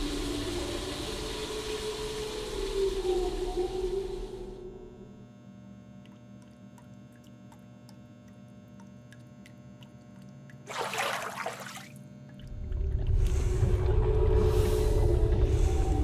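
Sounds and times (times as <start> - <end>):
steady low hum: 0.0 - 16.0
bathwater splash: 10.7 - 12.0
low rumble: 12.5 - 16.0.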